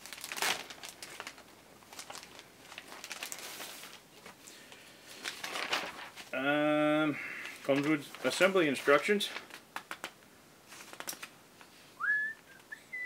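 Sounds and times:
plastic bag crinkling: 0.0 - 4.5, 5.1 - 6.4, 7.4 - 11.3
paper sheets rustling: 0.0 - 6.4, 7.4 - 10.1, 10.7 - 11.3.

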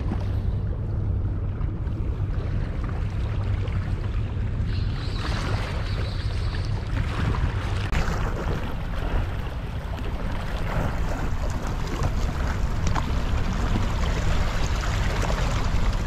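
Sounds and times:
sea noise: 0.0 - 16.0
wind buffeting microphone: 0.0 - 16.0.

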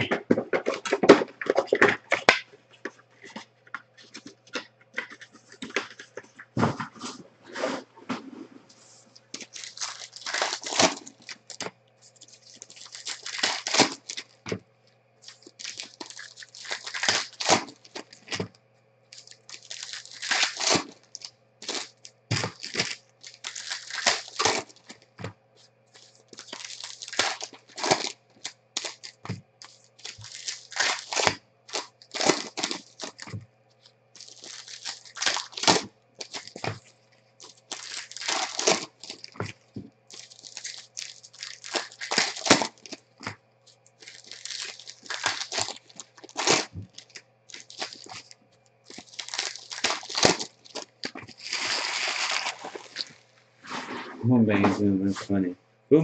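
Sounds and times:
foil wrappers torn and crinkled: 9.2 - 14.6, 15.2 - 18.5, 19.1 - 43.4, 44.0 - 53.8.

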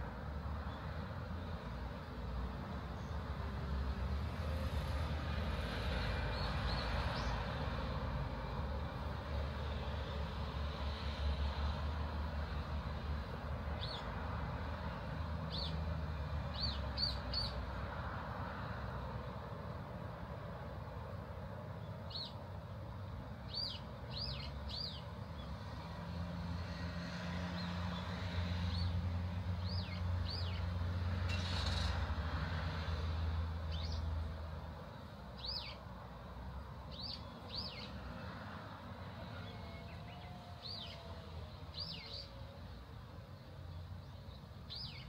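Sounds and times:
vehicle passing by: 0.0 - 20.9, 24.2 - 45.0
small birds chirping: 16.5 - 17.6, 23.4 - 25.6, 33.7 - 34.1, 35.4 - 35.8, 36.9 - 38.0, 39.4 - 42.5, 43.6 - 45.0.

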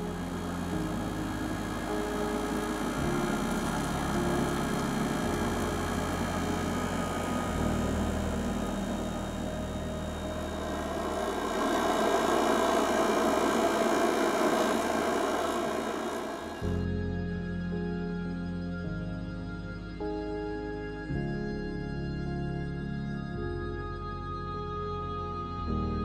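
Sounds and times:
burner rushing: 0.0 - 16.7
background music: 0.0 - 26.0.

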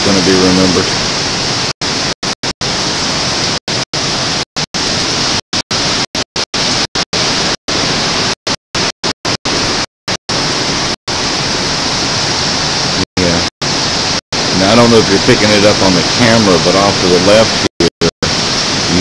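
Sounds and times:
wind and rain hiss: 0.1 - 1.7, 11.2 - 19.0.

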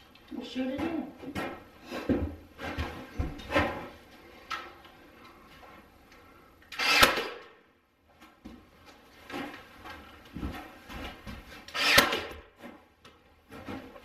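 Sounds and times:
nail gun hiss and bang: 6.7 - 7.5, 11.7 - 12.4.

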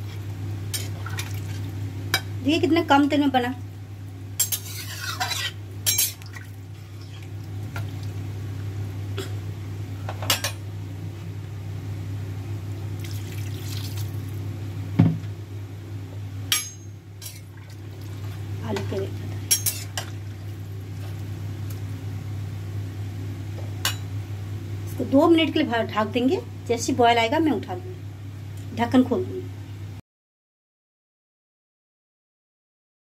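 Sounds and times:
steady low hum: 0.0 - 30.0
metal spatula scraping pan: 4.4 - 6.0.

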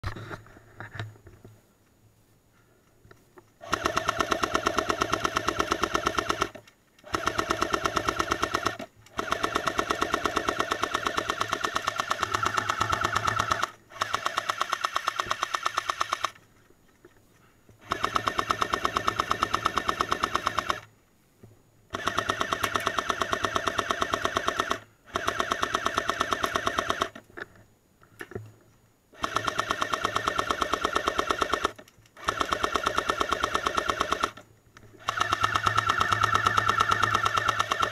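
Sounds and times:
airsoft gun full-auto bursts: 3.6 - 16.4, 17.8 - 20.9, 21.9 - 27.2, 29.2 - 34.4, 35.0 - 37.9.

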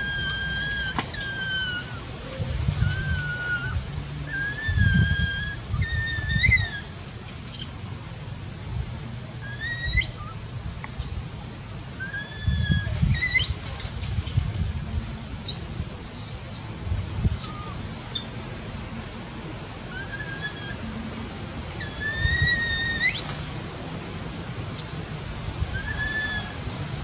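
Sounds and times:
baby monkey cooing and squealing: 0.0 - 2.0, 2.7 - 7.6, 9.4 - 11.0, 12.0 - 13.8, 15.5 - 18.3, 19.9 - 20.8, 21.8 - 24.8, 25.8 - 26.6.

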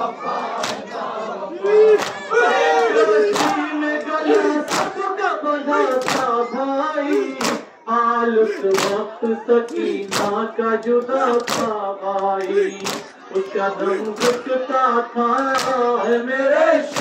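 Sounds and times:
man singing a lament: 1.6 - 17.0
crowd striking chests: 3.2 - 5.2, 8.6 - 10.4, 11.2 - 14.6, 15.2 - 17.0.

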